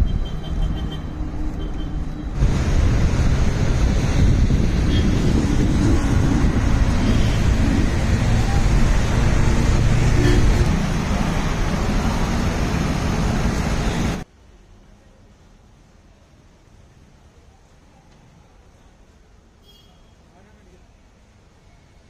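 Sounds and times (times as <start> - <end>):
wind buffeting microphone: 2.4 - 13.1.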